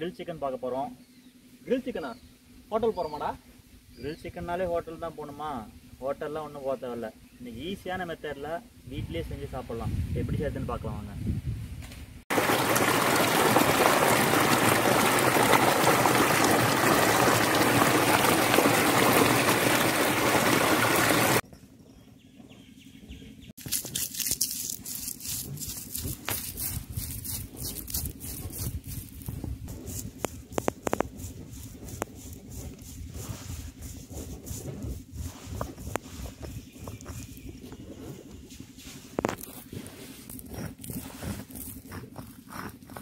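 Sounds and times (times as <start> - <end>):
grinding stone crunching chillies: 23.6 - 43.0.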